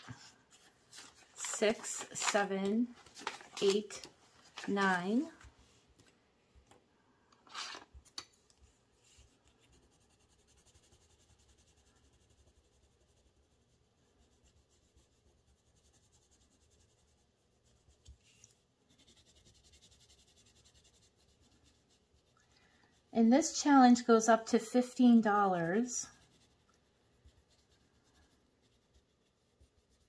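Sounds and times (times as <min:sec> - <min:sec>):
paper bills rustling: 0:00.5 - 0:05.4.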